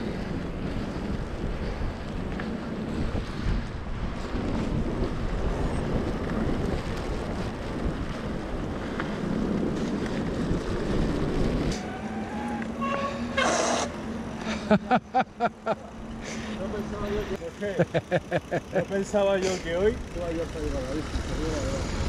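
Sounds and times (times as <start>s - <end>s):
wind buffeting microphone: 0.0s - 14.4s.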